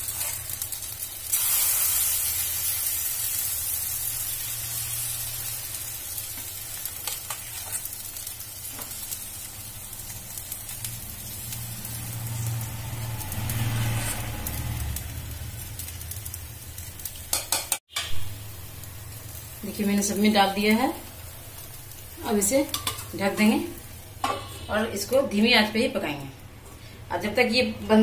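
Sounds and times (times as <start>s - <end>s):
batter sizzling in a pan: 0.0s - 26.1s
metal spoon clicking on pan: 22.7s - 23.1s.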